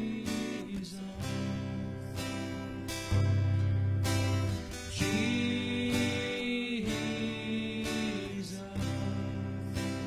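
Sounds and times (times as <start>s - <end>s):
person singing: 0.0s - 2.9s, 4.9s - 10.0s
acoustic guitar strumming: 0.0s - 10.0s.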